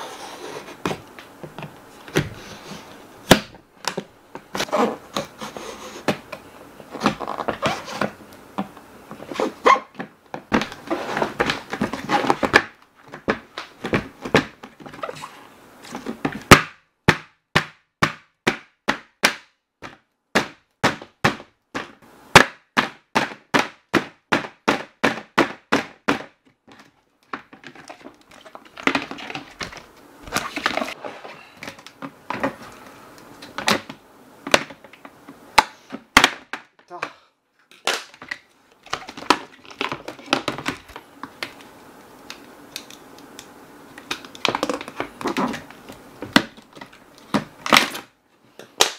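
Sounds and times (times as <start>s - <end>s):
plastic cracking: 37.7s - 48.1s.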